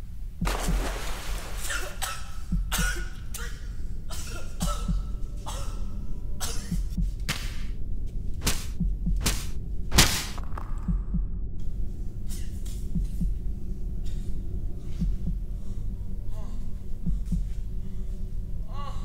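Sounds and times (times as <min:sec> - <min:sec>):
water spraying: 0:00.5 - 0:02.0
low steady rumble: 0:02.0 - 0:19.0.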